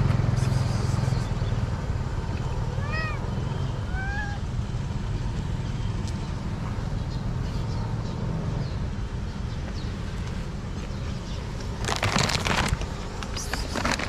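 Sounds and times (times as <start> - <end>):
cat meowing: 2.7 - 4.5.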